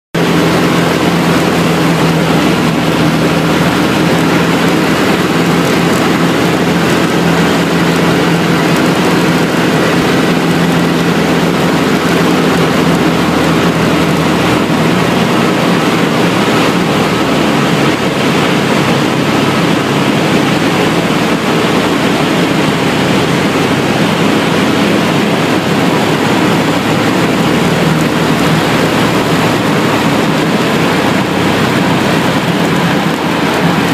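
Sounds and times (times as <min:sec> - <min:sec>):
light aircraft engine drone: 0:00.2 - 0:33.9.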